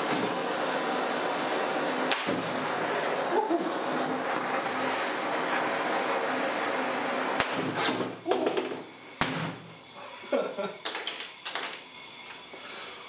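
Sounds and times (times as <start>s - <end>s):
blowtorch loud hiss: 0.0s - 13.0s
lighters bursting with sharp pops: 1.9s - 5.3s, 7.3s - 10.0s, 10.6s - 12.6s.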